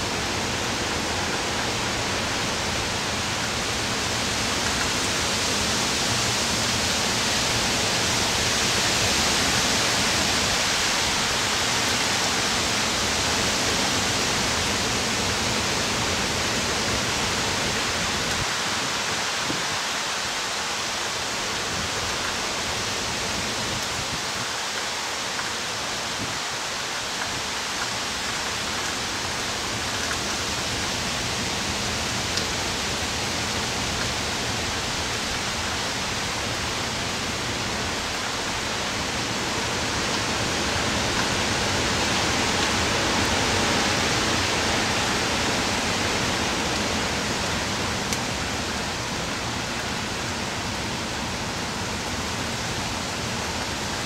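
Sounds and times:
heavy rain: 0.0s - 54.0s
wind: 0.0s - 54.0s.

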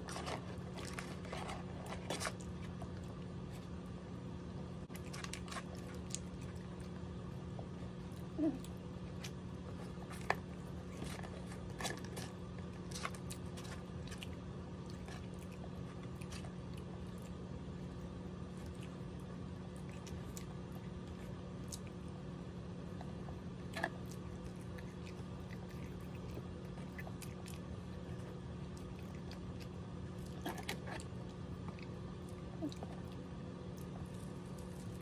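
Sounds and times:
steady low hum: 0.0s - 35.0s
crisp biting and chewing: 4.9s - 35.0s.

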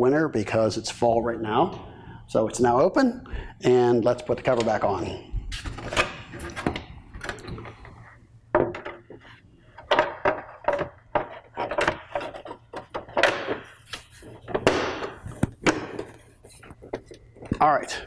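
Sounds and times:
plastic cover knocking and clattering: 9.9s - 13.6s.

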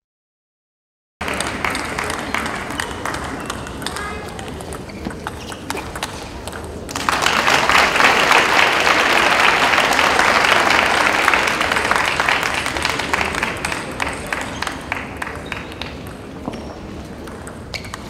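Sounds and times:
crowd applauding: 1.2s - 4.4s, 6.8s - 16.0s
table tennis ball clicks: 2.7s - 6.8s.

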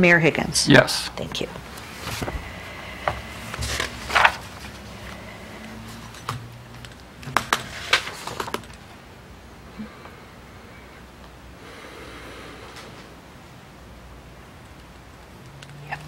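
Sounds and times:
paper rustling: 1.7s - 2.4s, 3.1s - 8.8s.

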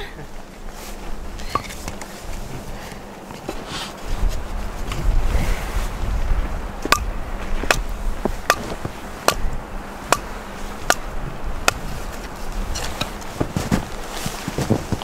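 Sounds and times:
hatchet chopping wood: 6.9s - 9.5s, 10.1s - 11.8s.

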